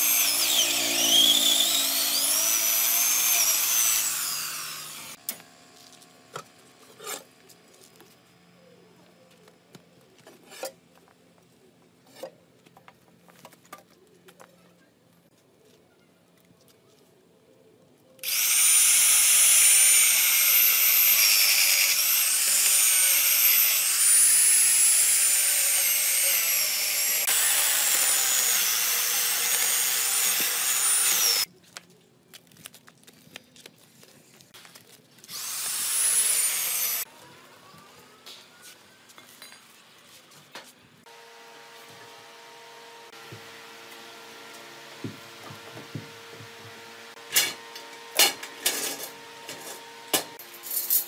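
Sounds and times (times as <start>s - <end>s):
chainsaw cutting log: 0.0s - 5.2s, 18.2s - 31.5s, 35.3s - 37.1s.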